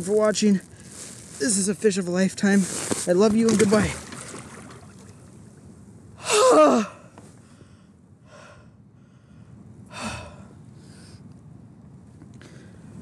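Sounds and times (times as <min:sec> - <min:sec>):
man crying out: 0:06.2 - 0:07.1
man gasping breaths: 0:06.2 - 0:11.2.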